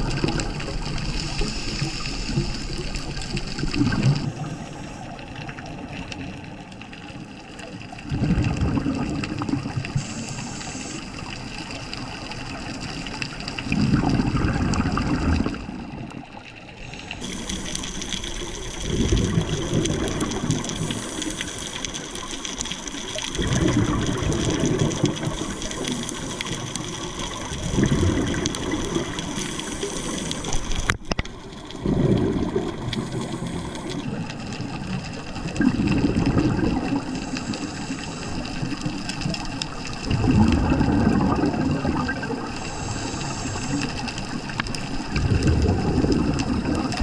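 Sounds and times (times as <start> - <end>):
diver exhaling bubbles: 0.0 - 5.0, 8.0 - 11.0, 13.6 - 16.1, 16.8 - 47.0
underwater hiss: 0.0 - 5.9, 8.4 - 15.6, 16.7 - 47.0.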